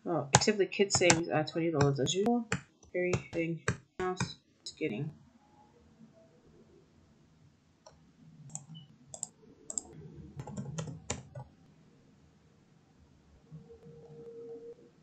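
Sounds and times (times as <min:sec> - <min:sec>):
computer keyboard and mouse clicks: 0:07.9 - 0:11.5.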